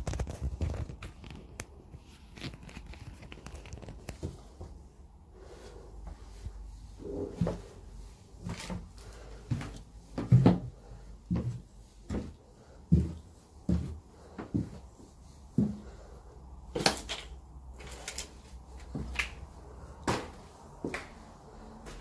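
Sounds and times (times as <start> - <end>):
footsteps on rubble-strewn stairs: 8.4 - 14.9.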